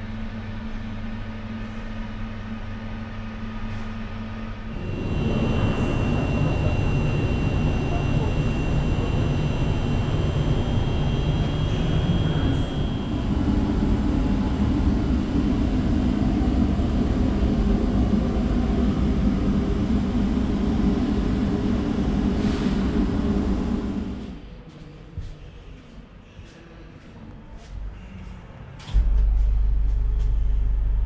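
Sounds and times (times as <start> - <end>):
train carriage hum and rumble: 0.0 - 31.0
high whine: 4.1 - 24.4, 28.8 - 31.0.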